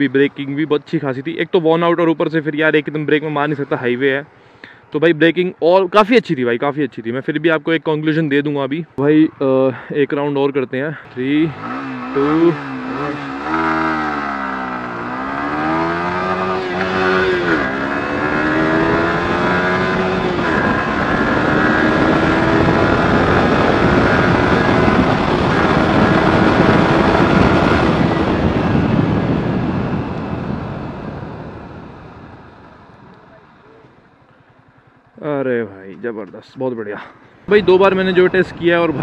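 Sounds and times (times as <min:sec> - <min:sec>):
motorcycle accelerating: 0:11.0 - 0:35.6, 0:37.4 - 0:39.0
wind rush: 0:12.5 - 0:33.0.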